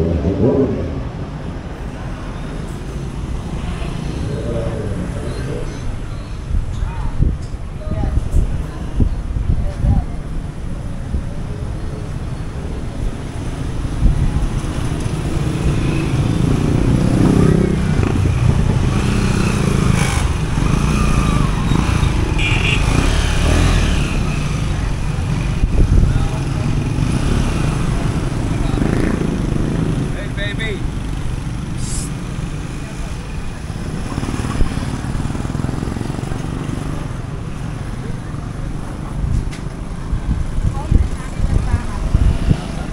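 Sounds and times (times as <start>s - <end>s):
motorcycle traffic: 0.0s - 42.9s
wind rumbling on microphone: 3.2s - 30.1s, 36.8s - 42.9s.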